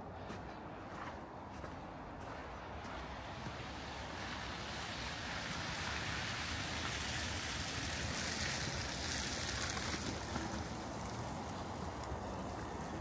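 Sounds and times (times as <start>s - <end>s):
tyres hissing on wet street: 2.7s - 13.0s.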